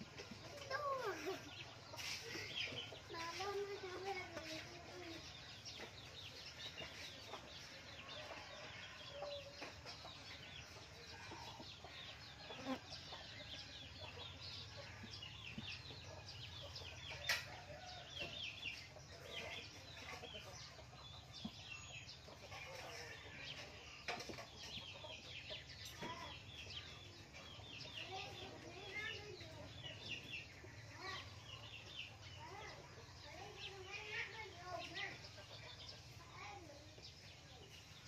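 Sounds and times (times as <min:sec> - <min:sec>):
small birds chirping: 0:00.0 - 0:38.0.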